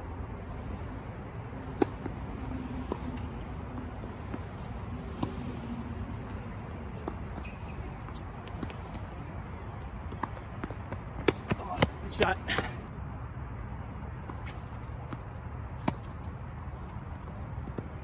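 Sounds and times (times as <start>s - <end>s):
tennis ball bouncing: 1.6s - 12.7s, 14.2s - 16.4s
racquet hitting tennis ball: 10.1s - 12.2s.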